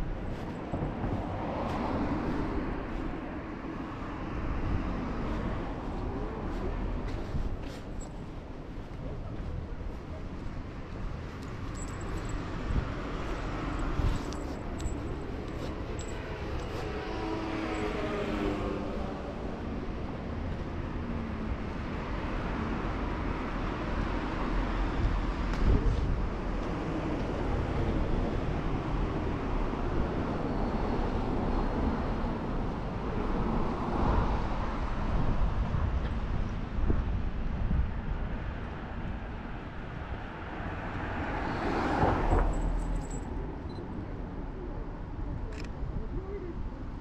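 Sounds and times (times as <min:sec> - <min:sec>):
traffic rumble: 0:00.0 - 0:47.0
vehicle passing: 0:11.6 - 0:19.9.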